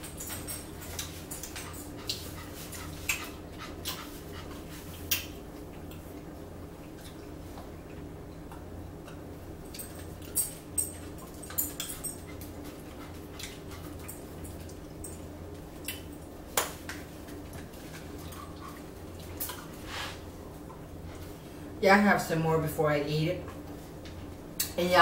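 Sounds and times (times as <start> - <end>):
steady low hum: 0.0 - 25.0
eating clicks and mouth smacks: 0.2 - 4.3, 4.9 - 10.5, 11.2 - 15.2, 15.8 - 19.8.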